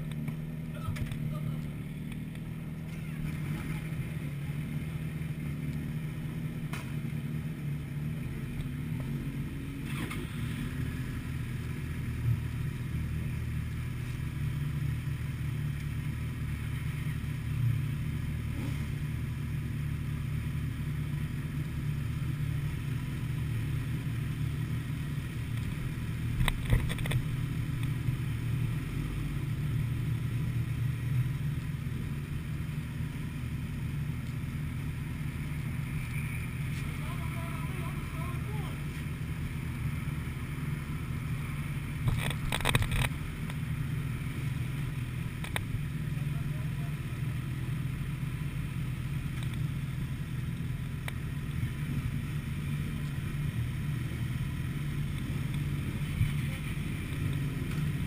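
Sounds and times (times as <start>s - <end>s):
motorcycle engines idling: 0.0s - 58.0s.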